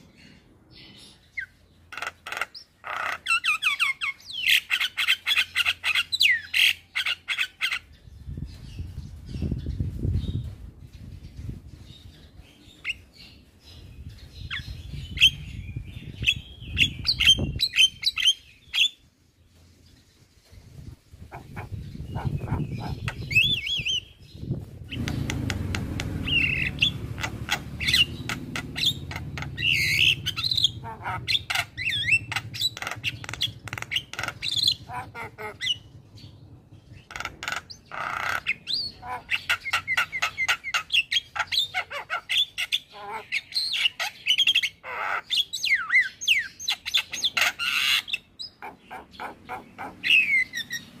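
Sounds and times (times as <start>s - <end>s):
myna bird singing: 0.0s - 51.0s
low rumble: 20.7s - 37.9s.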